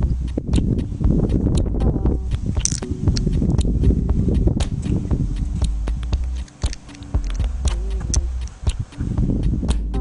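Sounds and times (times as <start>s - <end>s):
cartridges clicking into magazine: 2.6s - 2.9s, 6.4s - 8.3s.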